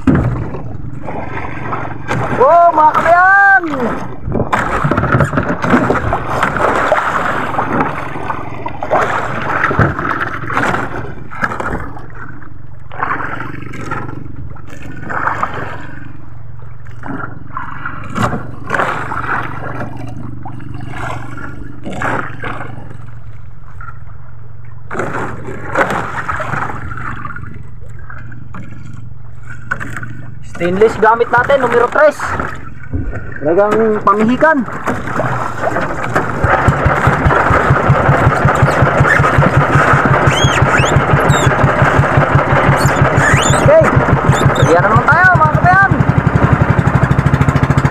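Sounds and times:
sharp knocks: 0.0 - 0.6
water splashing against boat hull: 0.0 - 47.9.

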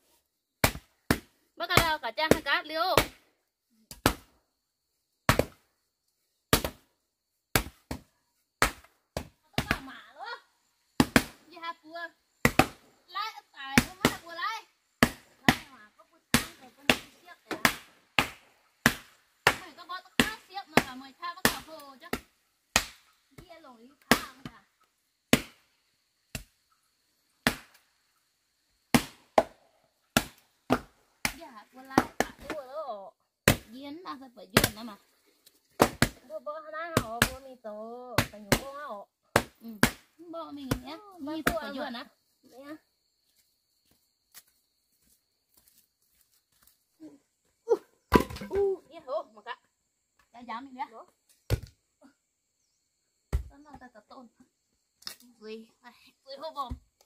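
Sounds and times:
wooden plank thudding on earth: 48.1 - 48.8, 51.4 - 51.8.

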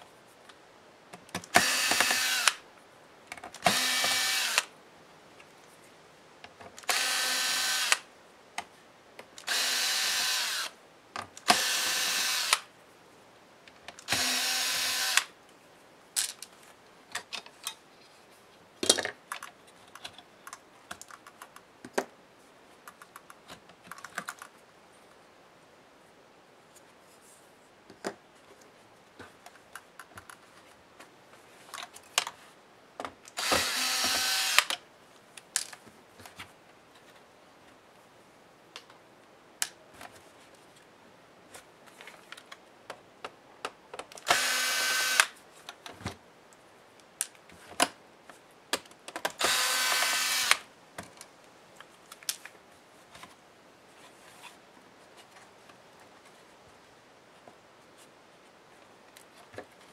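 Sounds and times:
electric screwdriver whirring: 1.6 - 2.6, 3.6 - 4.7, 6.8 - 8.0, 9.5 - 10.7, 11.5 - 12.6, 14.1 - 15.3, 33.4 - 34.7, 44.3 - 45.3, 49.4 - 50.6.

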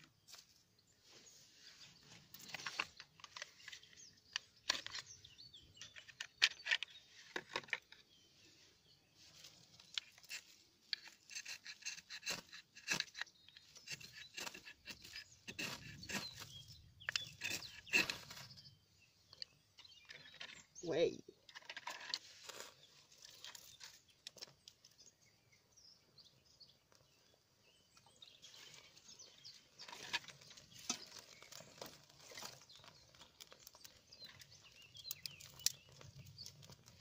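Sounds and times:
knife scraping ferro rod: 10.0 - 18.5.

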